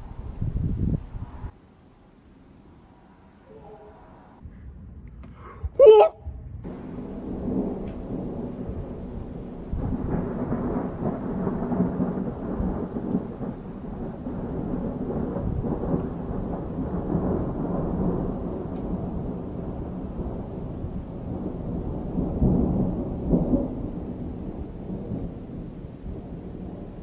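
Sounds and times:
rolling thunder rumble: 6.2s - 27.0s.

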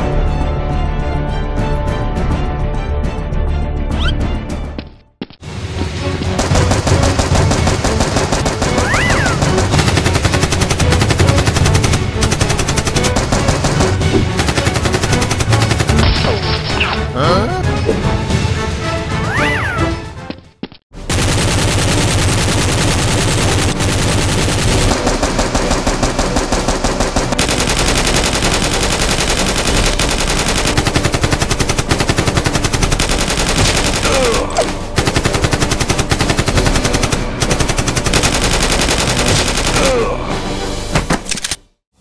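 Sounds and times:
rapid automatic gunfire: 6.4s - 16.2s, 21.0s - 40.0s.

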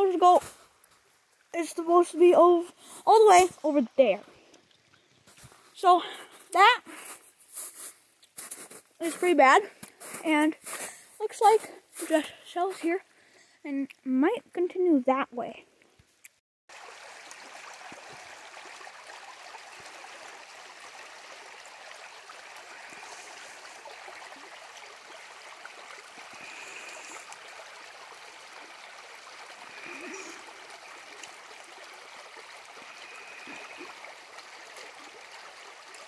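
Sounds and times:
floodwater rushing: 16.7s - 36.0s.

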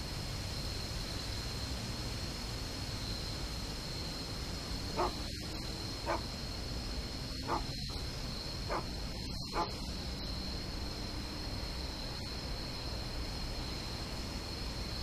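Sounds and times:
steady background noise: 0.0s - 15.0s
short animal calls: 4.9s - 6.2s, 7.4s - 7.9s, 8.7s - 9.7s.

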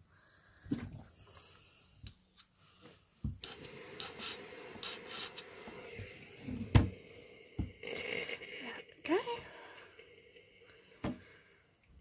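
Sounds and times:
iron scraping over fabric: 3.4s - 6.9s.

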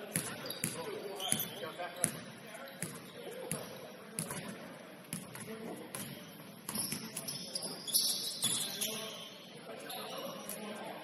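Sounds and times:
murmur of voices: 0.0s - 11.0s
basketball bouncing on gym floor: 0.1s - 4.5s, 5.1s - 7.4s.

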